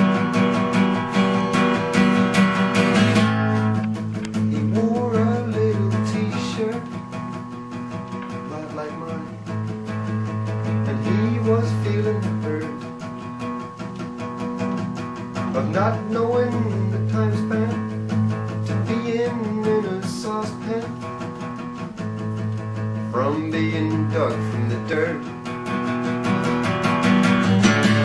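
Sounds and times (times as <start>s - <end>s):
acoustic guitar strumming: 0.0s - 28.0s
man singing: 4.3s - 7.2s, 8.2s - 13.2s, 15.4s - 21.4s, 23.0s - 25.5s.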